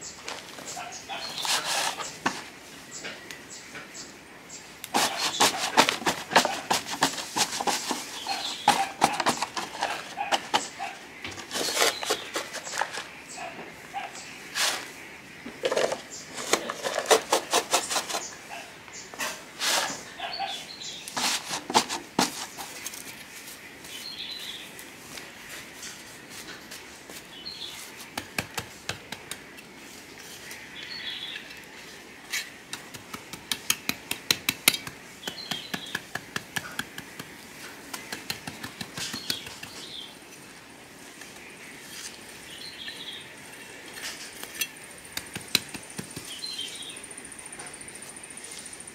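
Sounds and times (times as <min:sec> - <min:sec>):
small birds chirping: 0:00.0 - 0:48.9
trowel scraping dry soil: 0:00.3 - 0:02.6, 0:04.8 - 0:13.4, 0:14.5 - 0:24.6, 0:25.4 - 0:40.1, 0:43.8 - 0:46.6.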